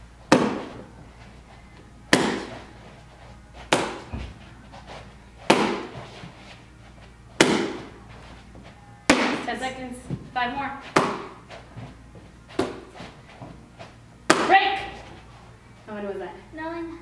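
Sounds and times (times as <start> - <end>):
bare foot smacking kick paddle: 0.3 - 0.8, 2.1 - 2.7, 3.7 - 4.4, 5.4 - 6.3, 7.4 - 8.0, 9.1 - 9.5, 10.9 - 11.9, 12.5 - 13.6, 14.3 - 15.0.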